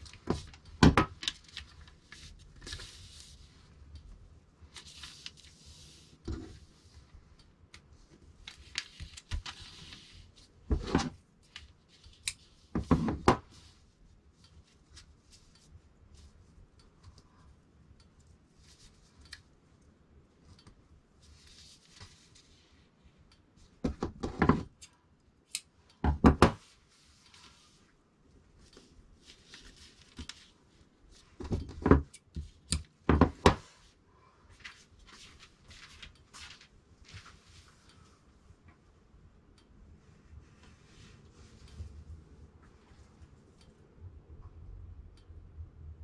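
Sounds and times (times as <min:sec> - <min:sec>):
fabric and paper rustling: 0:00.0 - 0:03.9, 0:04.6 - 0:07.2, 0:08.0 - 0:14.0, 0:21.2 - 0:22.9, 0:26.6 - 0:27.9, 0:28.6 - 0:31.7, 0:33.2 - 0:37.9.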